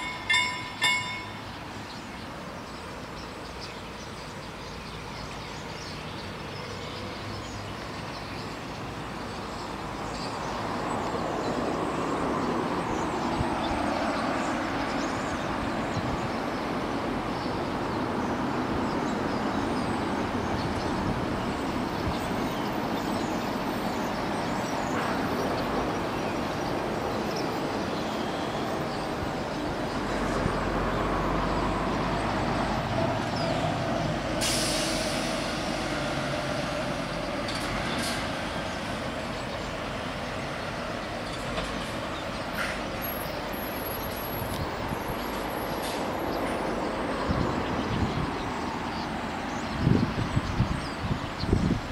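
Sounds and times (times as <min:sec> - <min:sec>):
crossing warning bells ringing: 0:00.0 - 0:02.1
road vehicles passing: 0:00.0 - 0:51.9
hiss of air: 0:34.2 - 0:36.8.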